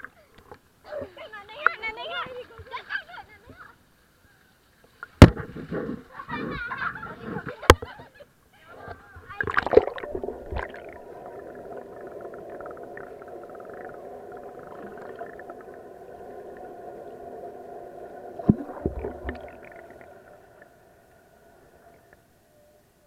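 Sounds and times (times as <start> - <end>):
sharp underwater knocks: 5.2 - 6.0, 18.4 - 19.6
underwater droning hum: 8.9 - 23.0.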